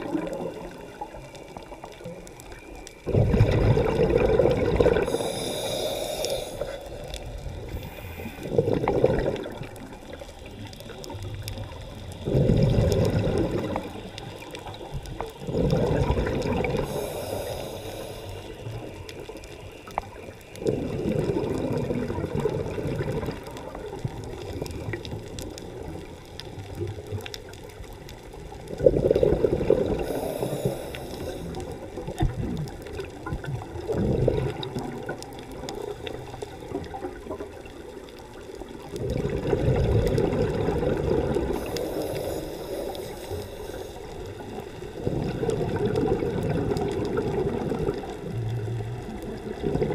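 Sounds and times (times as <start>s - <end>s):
exhaled bubbles underwater: 0.0s - 49.9s.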